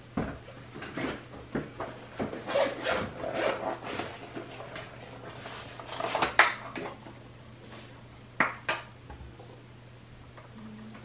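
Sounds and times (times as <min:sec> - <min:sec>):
objects rustling and clattering: 0:00.2 - 0:08.0.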